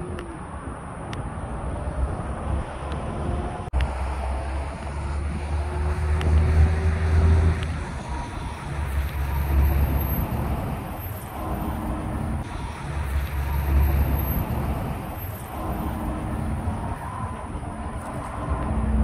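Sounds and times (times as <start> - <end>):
highway traffic passing: 0.0 - 19.0.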